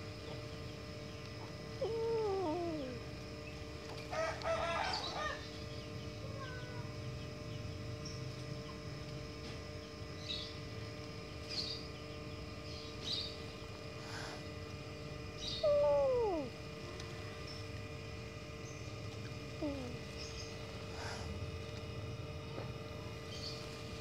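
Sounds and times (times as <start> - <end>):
rooster crowing: 4.1 - 5.5
faint bird chirps: 15.3 - 16.5
kitten meowing: 15.6 - 16.5.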